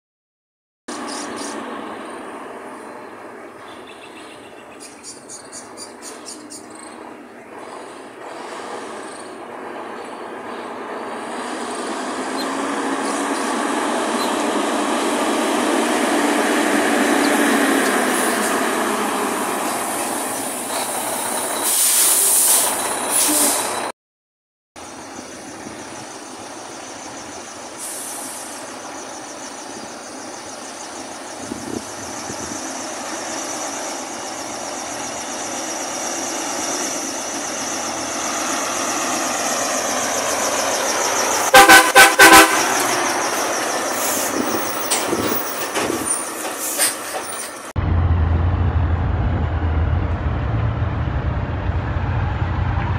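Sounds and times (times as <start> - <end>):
diesel truck engine: 0.9 - 23.9, 24.8 - 52.9
air brake hiss bursts: 19.8 - 23.8, 27.8 - 28.7, 43.4 - 44.5, 46.2 - 47.4
high whine: 47.8 - 52.9.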